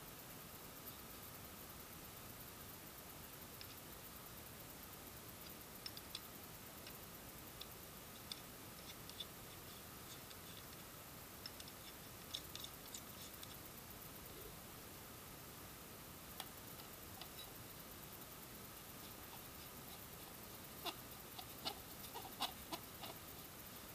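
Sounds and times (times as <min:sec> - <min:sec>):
faint steady hiss: 0:00.0 - 0:23.9
small clicks of parts screwed together: 0:05.4 - 0:07.0, 0:07.6 - 0:10.8, 0:11.4 - 0:13.6.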